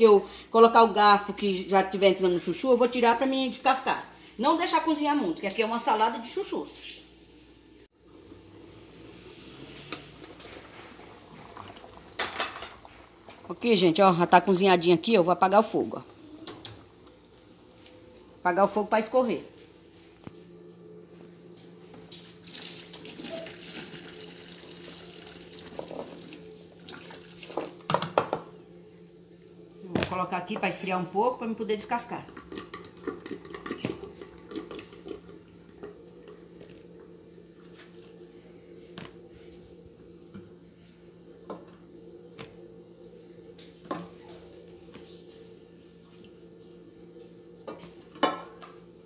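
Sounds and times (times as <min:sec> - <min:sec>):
steady low hum: 0:00.0 - 0:22.4, 0:24.4 - 0:49.0
water pouring into metal sink: 0:22.1 - 0:27.8.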